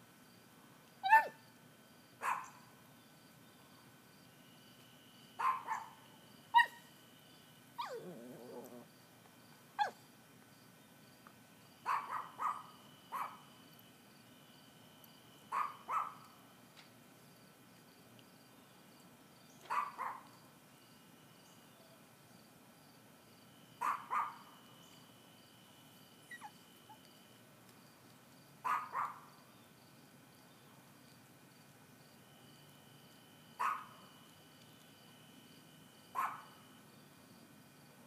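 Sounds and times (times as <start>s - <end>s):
dog yipping: 1.0s - 1.4s, 2.2s - 2.6s, 5.4s - 6.0s, 6.6s - 6.9s, 7.8s - 8.8s, 11.9s - 13.4s, 15.5s - 16.2s, 19.7s - 20.2s, 23.8s - 24.4s, 26.3s - 27.0s, 28.7s - 29.2s, 33.6s - 33.9s, 36.2s - 36.5s.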